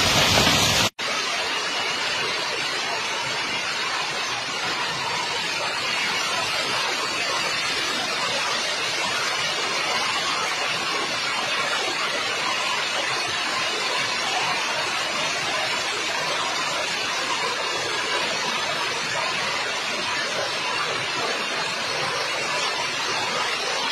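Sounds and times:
hail and heavy rain pelting: 0.0s - 0.9s.

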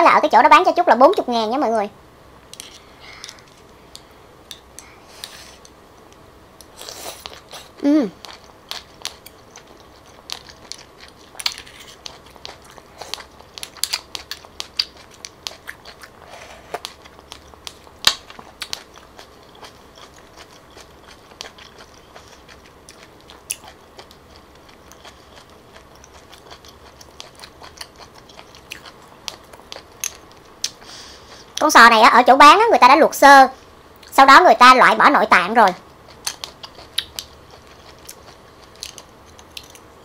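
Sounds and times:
person chewing: 2.6s - 31.6s, 35.9s - 40.0s.

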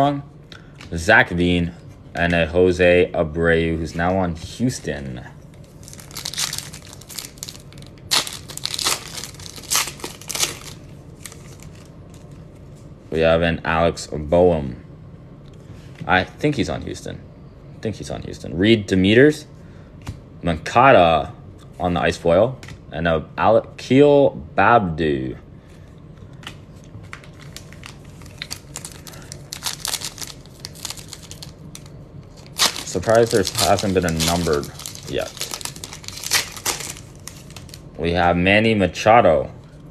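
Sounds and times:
foil wrapper tearing and crinkling: 5.8s - 12.2s, 27.1s - 37.8s.

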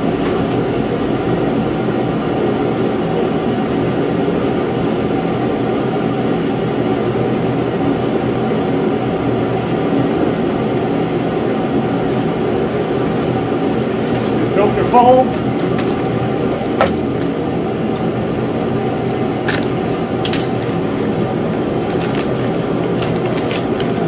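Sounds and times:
propane heater running: 0.0s - 24.0s.

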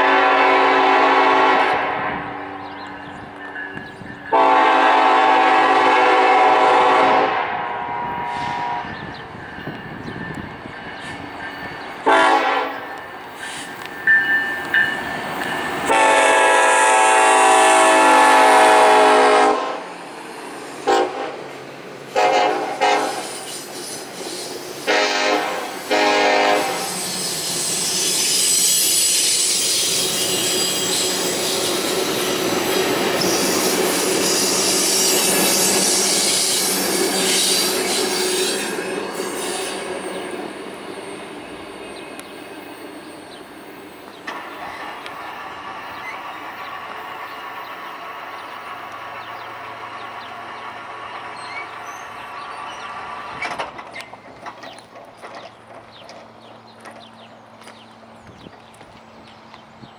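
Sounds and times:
locomotive air horn blasts: 0.0s - 2.4s, 4.3s - 9.1s, 12.0s - 12.9s, 15.9s - 19.9s, 20.8s - 21.5s, 22.1s - 23.4s, 24.8s - 29.6s
train cars rumbling on wheels: 0.0s - 59.9s.

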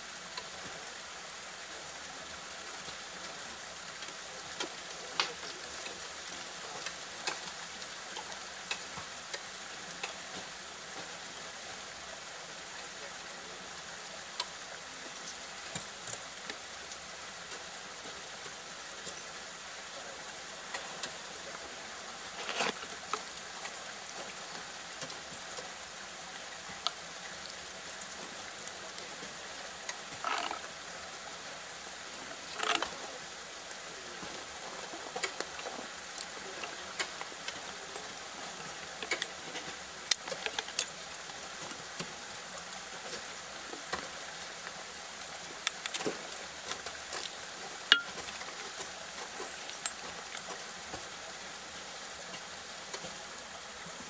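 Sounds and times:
steady hiss: 0.0s - 54.0s.

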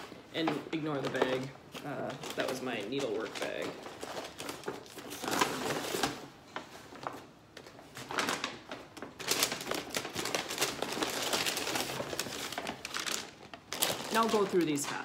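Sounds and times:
paper bag rustling and crinkling: 0.0s - 15.0s.

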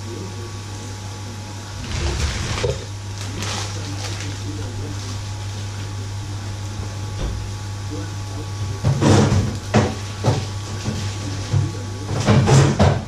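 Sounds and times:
low kitchen hum: 0.0s - 13.0s
plastic bag rustling: 1.8s - 5.2s.

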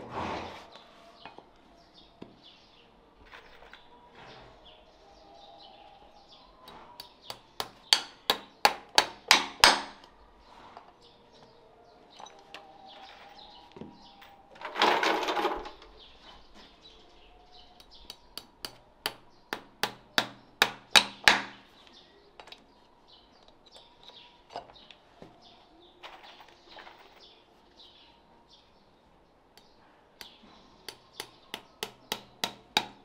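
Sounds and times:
hammer blows ringing: 6.7s - 10.0s.

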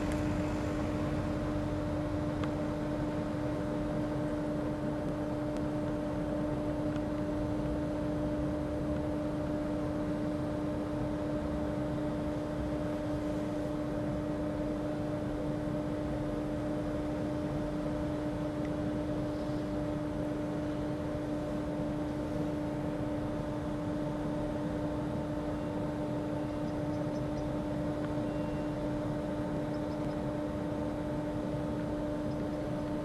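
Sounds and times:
low rumble: 0.0s - 4.0s
electric train hum: 0.0s - 33.0s.

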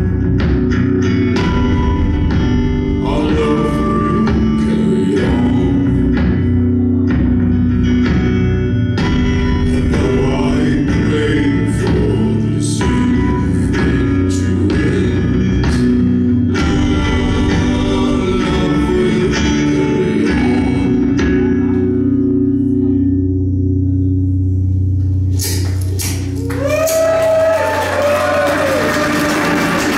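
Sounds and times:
strummed guitar: 0.0s - 23.9s
man singing: 2.9s - 7.1s, 9.4s - 22.0s
audience cheering and applause: 25.6s - 29.9s.

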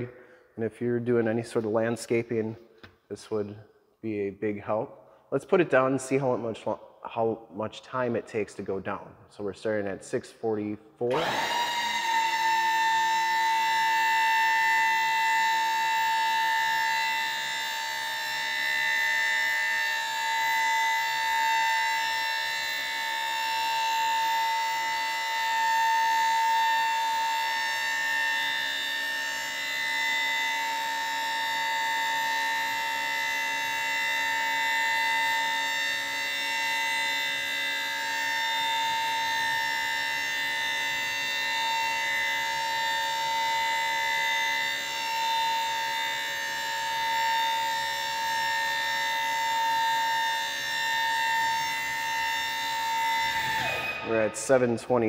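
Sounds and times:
hydraulic hoist whine: 11.1s - 55.0s.

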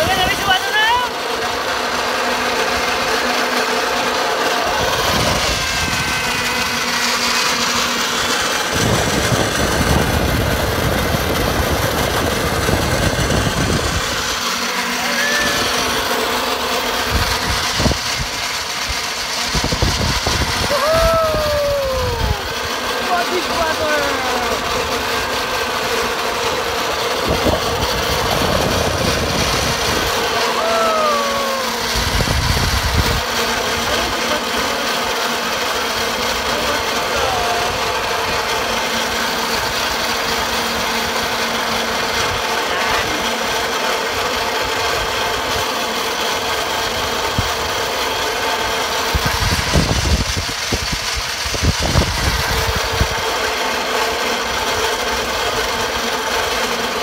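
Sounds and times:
zipline pulleys humming on cable: 0.0s - 57.0s
wind buffeting microphone: 4.8s - 6.7s, 8.7s - 14.3s, 19.5s - 22.5s, 27.2s - 30.3s, 31.8s - 33.3s, 49.1s - 53.2s.

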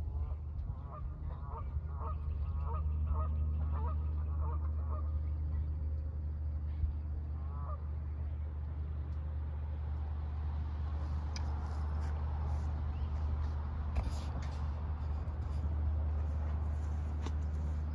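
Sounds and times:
steady low rumble: 0.0s - 17.9s
geese honking: 0.7s - 5.2s, 7.4s - 7.9s.

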